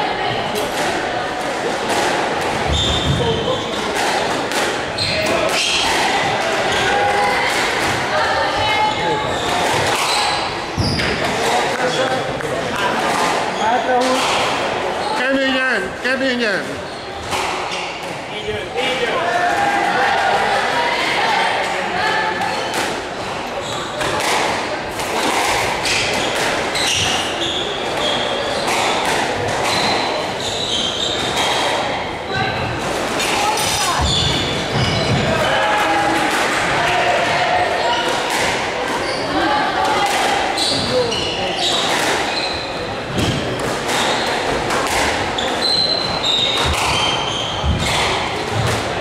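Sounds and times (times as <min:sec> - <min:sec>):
squash ball hits: 0:01.8 - 0:06.5, 0:43.1 - 0:45.3, 0:46.4 - 0:49.0
shoes squeaking on wooden floor: 0:02.6 - 0:03.9, 0:05.0 - 0:05.7, 0:08.6 - 0:11.6, 0:29.6 - 0:31.8, 0:33.4 - 0:35.4, 0:40.6 - 0:44.3, 0:45.4 - 0:48.7.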